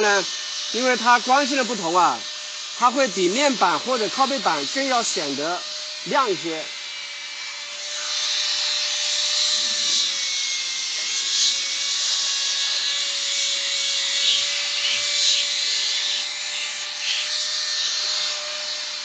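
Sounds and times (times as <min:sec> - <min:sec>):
electric drill motor whine: 0:00.0 - 0:19.0
polishing pad rubbing wood: 0:09.4 - 0:18.4.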